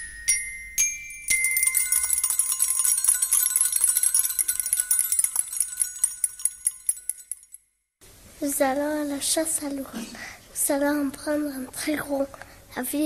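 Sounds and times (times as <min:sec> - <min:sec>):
jingle bells shaken: 0:00.0 - 0:07.6.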